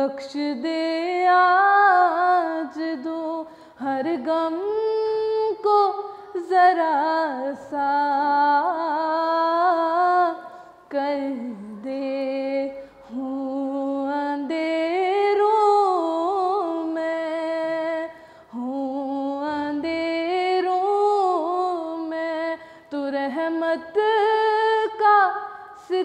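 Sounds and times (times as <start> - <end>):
girl singing unaccompanied: 0.0 - 26.0.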